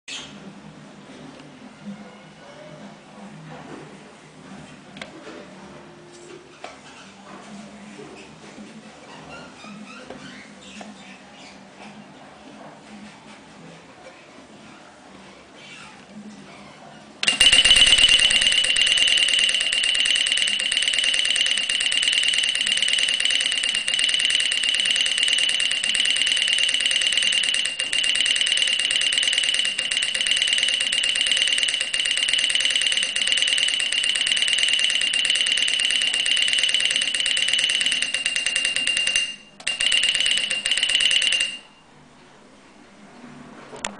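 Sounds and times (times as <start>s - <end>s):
twin-bell alarm clock ringing: 17.2s - 41.8s.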